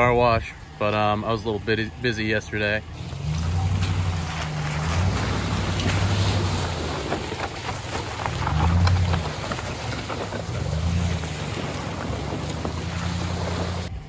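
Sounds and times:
water trickling through creek: 2.9 - 13.9
wind buffeting microphone: 3.0 - 13.9.

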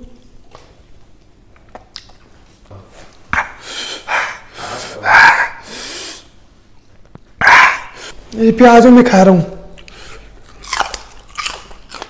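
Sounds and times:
man breathing harshly: 3.4 - 6.4.

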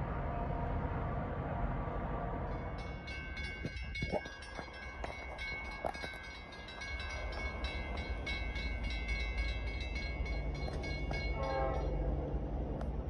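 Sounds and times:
train rumble: 0.0 - 13.0
railroad warning bell ringing: 2.4 - 12.6.

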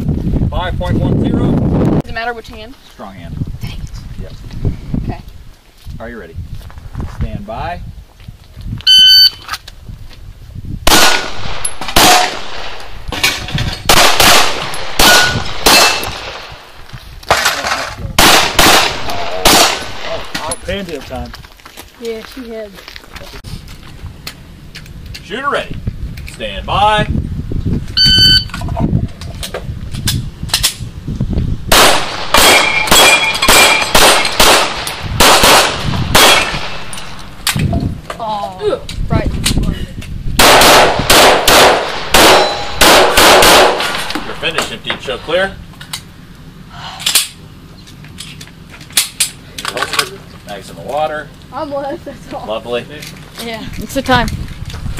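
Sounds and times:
shot timer beep: 8.9 - 9.4, 28.0 - 28.5
pistol shots: 10.9 - 12.9, 13.9 - 16.6, 18.2 - 20.3, 31.7 - 37.0, 40.4 - 44.8.

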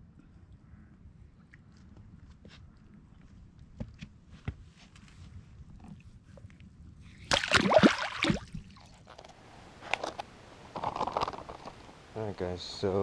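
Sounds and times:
fish splashing into water: 7.2 - 8.8.

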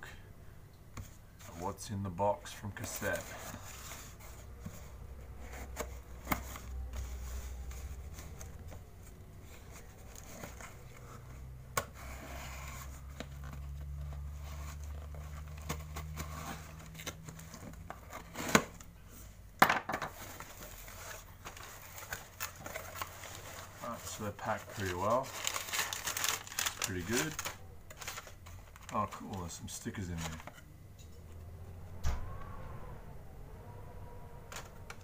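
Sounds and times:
cardboard scratching and tearing: 11.9 - 18.8, 20.2 - 29.3.

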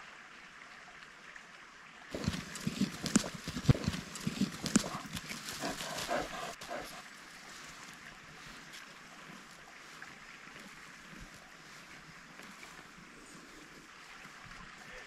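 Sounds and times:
hands scraping through soil: 2.1 - 7.0.

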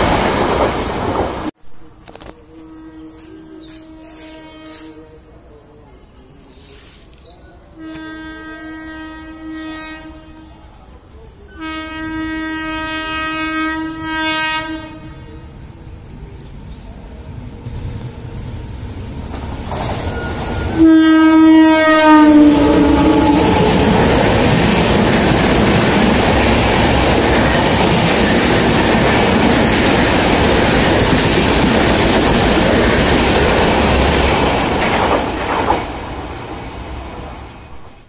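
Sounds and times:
train horn: 2.6 - 5.1, 7.8 - 10.6, 11.5 - 15.5, 20.6 - 24.7
train wheels clickety-clack: 17.6 - 20.8, 23.4 - 36.0.

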